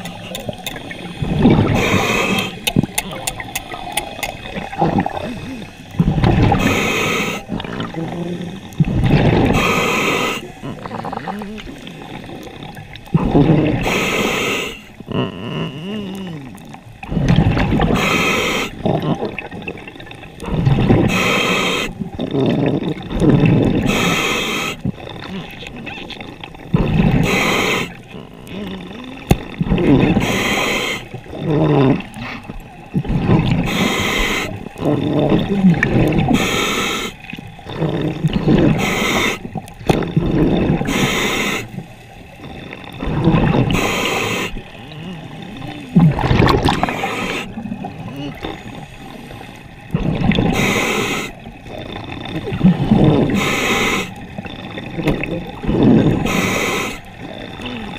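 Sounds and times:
exhaled bubbles gurgling: 0.0s - 57.9s
regulator inhalation hiss: 1.7s - 2.7s, 6.5s - 7.5s, 9.5s - 10.9s, 13.8s - 15.0s, 17.8s - 18.8s, 21.0s - 22.0s, 23.8s - 24.8s, 27.2s - 28.1s, 30.2s - 31.3s, 33.6s - 34.7s, 36.3s - 37.3s, 38.7s - 39.6s, 40.8s - 42.2s, 43.7s - 44.8s, 50.5s - 51.6s, 53.3s - 54.3s, 56.2s - 57.2s.

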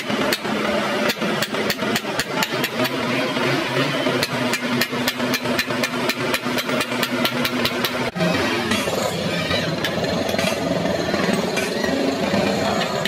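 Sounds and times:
hammer striking chisel on metal: 0.3s - 3.0s, 4.2s - 8.1s.

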